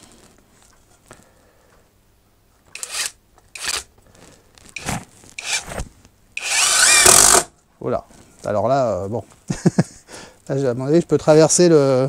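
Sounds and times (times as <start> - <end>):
impact driver driving screw into wood: 2.7 - 3.9, 4.8 - 5.8, 6.4 - 7.5.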